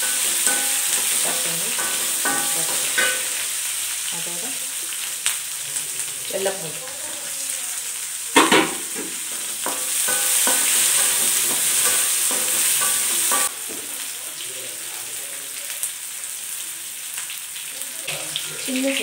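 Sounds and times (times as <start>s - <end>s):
spatula scraping a pan: 0.0s - 3.6s, 8.8s - 13.5s
onions sizzling in hot oil: 0.0s - 19.0s.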